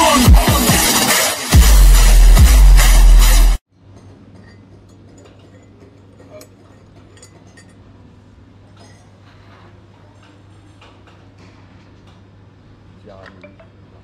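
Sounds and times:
glass mugs and cups clinking: 4.0 - 7.9.

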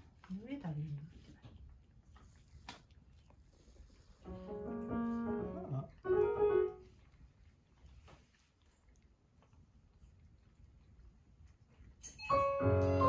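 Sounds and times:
piano-like chime notes: 12.0 - 13.0.

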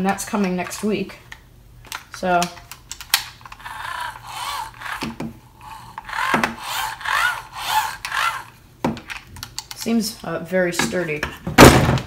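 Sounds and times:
tool parts scraping: 1.9 - 9.9.

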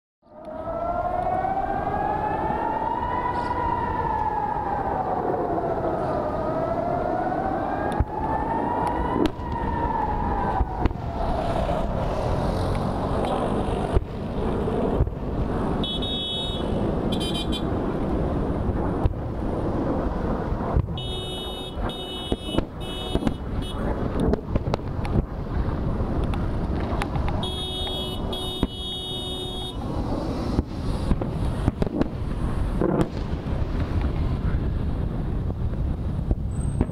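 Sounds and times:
air-raid siren wailing: 0.2 - 19.0, 19.8 - 24.2, 26.8 - 31.8
wind-like roar: 0.3 - 36.9.

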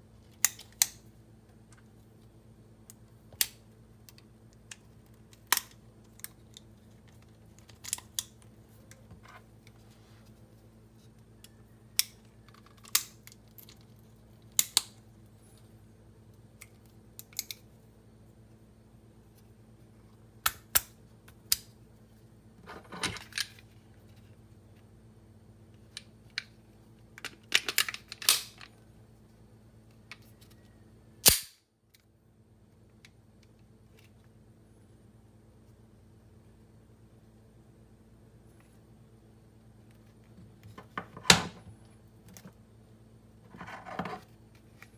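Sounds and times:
pistol parts clicking and clacking: 27.2 - 28.7.

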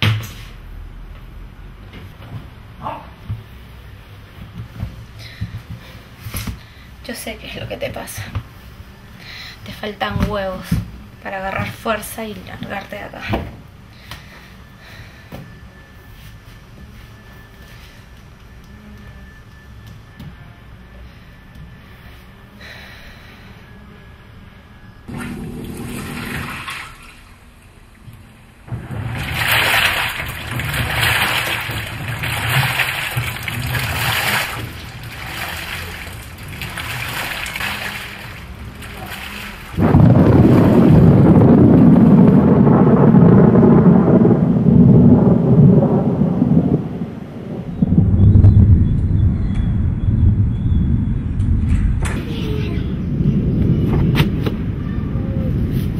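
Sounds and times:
washing machine motor hum: 24.2 - 45.8
washing machine sloshing water: 25.1 - 43.9
thunder rumbling: 28.5 - 55.9.

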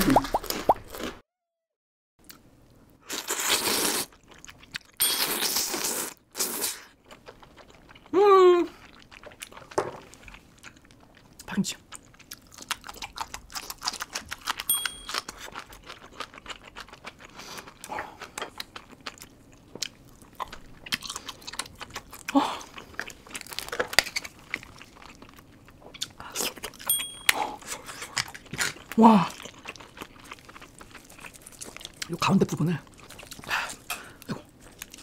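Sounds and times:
crackling mouth sounds: 0.0 - 1.1
wet chewing and smacking: 4.1 - 5.7, 6.4 - 8.1, 8.8 - 35.0.

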